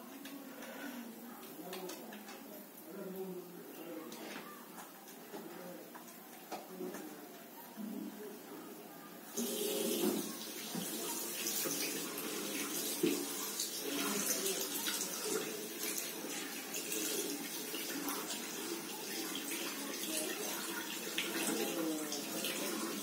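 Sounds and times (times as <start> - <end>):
water running from tap: 9.3 - 23.0
hands rinsed under water: 9.4 - 23.0.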